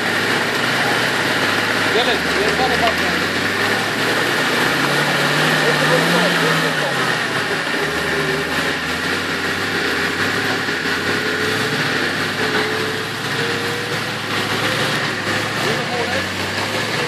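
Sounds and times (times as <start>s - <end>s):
car engine running: 0.0s - 17.0s.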